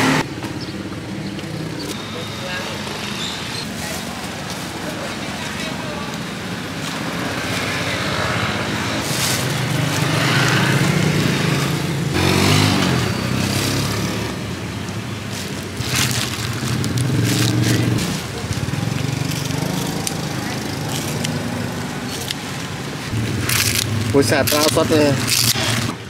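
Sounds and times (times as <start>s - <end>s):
motorbikes passing: 0.0s - 26.0s
plastic glove crinkling: 15.2s - 21.3s.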